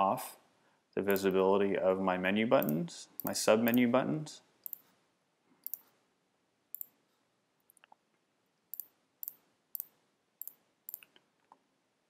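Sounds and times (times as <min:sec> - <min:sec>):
computer mouse button clicks: 0:04.6 - 0:04.8, 0:05.6 - 0:05.9.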